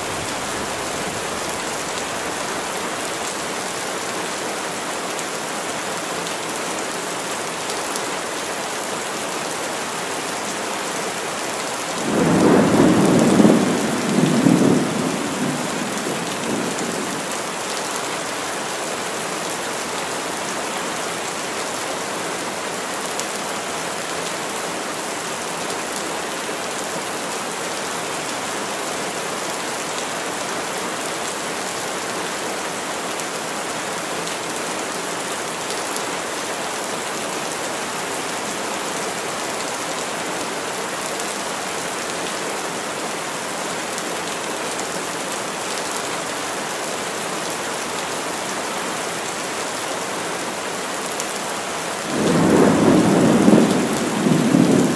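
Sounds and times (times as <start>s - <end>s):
heavy rain in forest: 0.0s - 54.9s.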